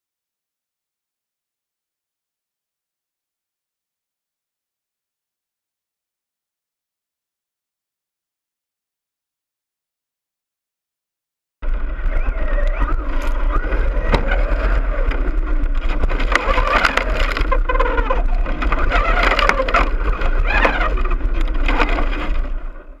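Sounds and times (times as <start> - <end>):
gravel crunching: 11.6 - 23.0
electric motor whining: 11.7 - 22.8.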